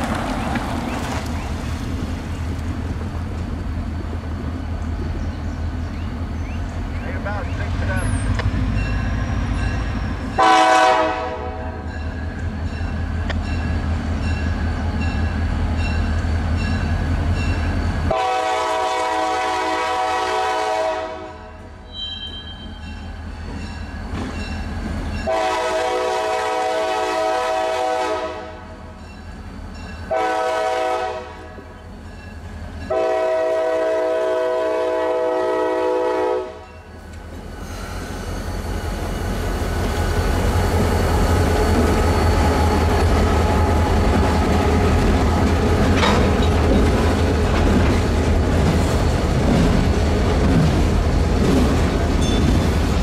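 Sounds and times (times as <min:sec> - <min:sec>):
diesel engines rumbling: 0:00.0 - 0:19.1
locomotive bell ringing: 0:07.4 - 0:10.5, 0:11.8 - 0:18.2, 0:21.8 - 0:25.4, 0:29.0 - 0:30.2, 0:32.0 - 0:33.0, 0:52.2 - 0:52.8
diesel train horn blasts: 0:10.2 - 0:12.0, 0:18.1 - 0:22.8, 0:25.2 - 0:28.8, 0:30.1 - 0:31.7, 0:32.9 - 0:36.8.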